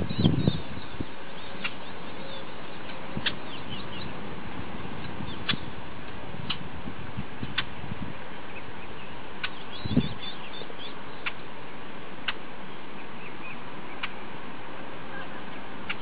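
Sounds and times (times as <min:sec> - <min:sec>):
small birds chirping: 0:00.0 - 0:05.8, 0:07.3 - 0:07.8, 0:08.4 - 0:14.3
steady hiss: 0:00.0 - 0:16.0.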